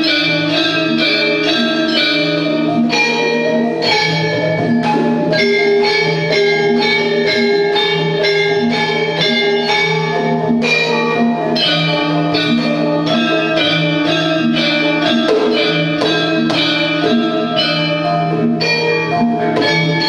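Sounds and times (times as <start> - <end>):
metallophones and gong-chimes struck: 0.0 - 20.0
hand drumming: 10.4 - 18.1, 19.2 - 20.0.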